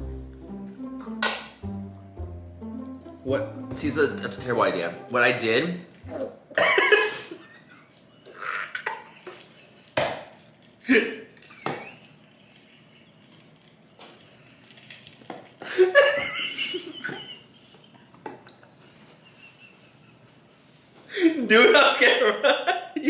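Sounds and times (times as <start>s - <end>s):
people laughing: 6.6s - 10.0s, 10.9s - 15.0s, 15.6s - 20.9s
cups knocking on table: 11.6s - 11.9s.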